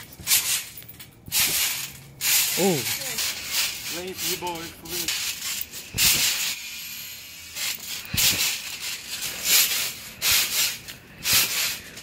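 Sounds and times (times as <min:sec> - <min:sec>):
trampoline mat thumping: 0:05.9 - 0:06.5
rushing rustling noise: 0:07.6 - 0:12.0.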